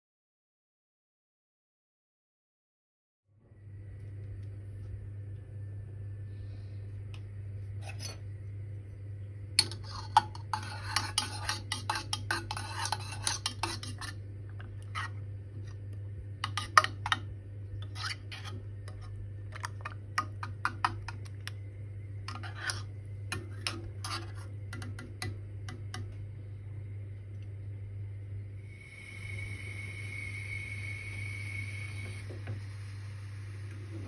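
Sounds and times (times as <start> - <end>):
teaspoon clinking against metal pot: 9.6 - 14.2.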